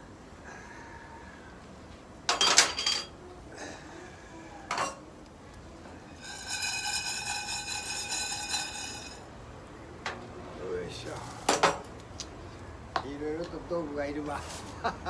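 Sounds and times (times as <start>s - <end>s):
metal cookware clanking: 2.3s - 3.1s, 6.1s - 9.2s
saucepan scraping on grill grate: 6.0s - 9.3s.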